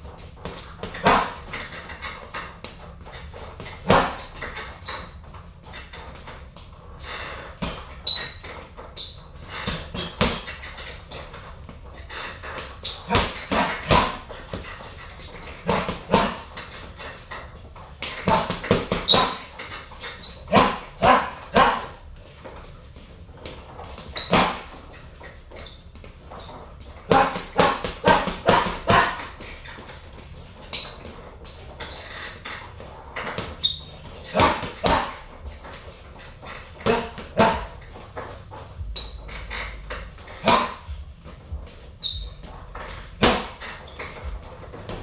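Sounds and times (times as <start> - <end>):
brief high squeaks: 3.9 - 5.3, 7.7 - 9.8, 19.0 - 20.8, 24.1 - 24.6, 30.7 - 31.0, 31.8 - 32.4, 33.6 - 35.2, 38.9 - 39.8, 42.0 - 44.2
gloved punches on heavy bag: 13.1 - 14.7, 15.6 - 16.5, 18.0 - 19.5, 20.5 - 22.0, 27.1 - 29.3, 34.2 - 35.2, 36.8 - 37.8, 40.4 - 40.9, 43.2 - 43.6.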